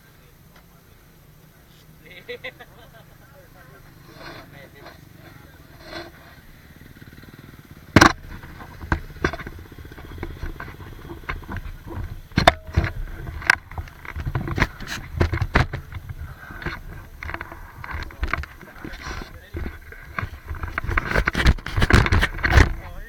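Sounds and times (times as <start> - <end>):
motorcycle engine idling: 0.1 - 23.0
camera mount knocks and scrapes: 4.1 - 6.3, 7.9 - 23.0.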